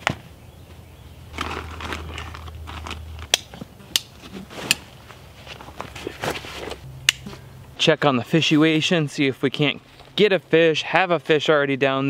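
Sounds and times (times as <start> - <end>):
backpack being handled: 1.4 - 6.8
clothing rustling: 4.2 - 6.9.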